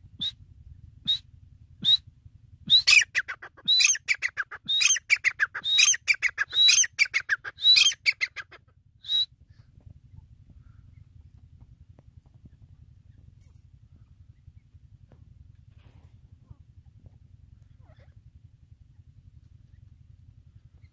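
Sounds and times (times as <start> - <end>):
francolin calling: 2.7 - 9.3.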